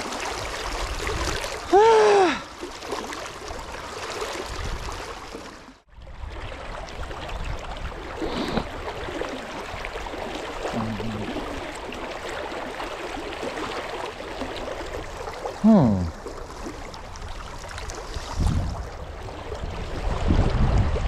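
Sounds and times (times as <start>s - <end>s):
person groaning: 1.7s - 2.4s, 10.8s - 11.4s, 15.6s - 16.1s.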